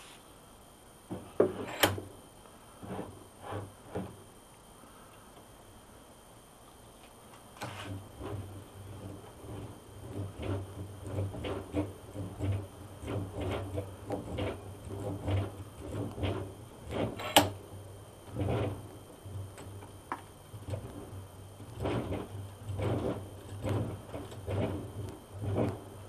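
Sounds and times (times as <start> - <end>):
bench vise screw scraping: 1.4 - 2.0, 2.8 - 4.1, 7.6 - 17.5.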